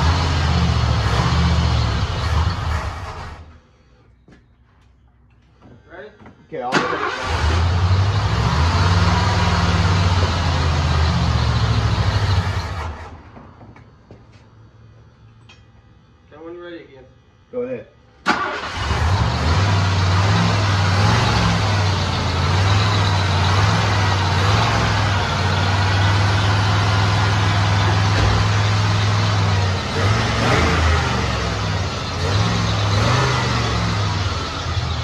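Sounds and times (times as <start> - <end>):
engine idling and revving: 0.0 - 3.6, 6.8 - 13.2, 18.3 - 35.0.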